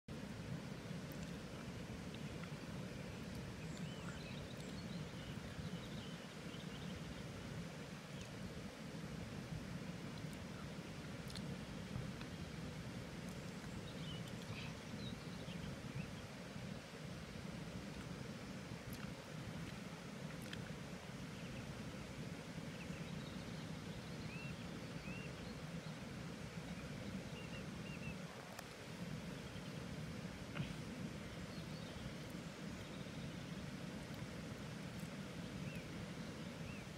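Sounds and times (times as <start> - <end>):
faint bird chirps: 2.4 - 7.2, 13.3 - 16.8.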